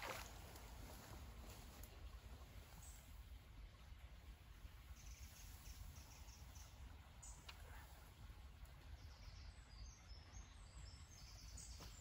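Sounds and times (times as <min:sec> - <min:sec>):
faint clicks: 0:07.3 - 0:07.8.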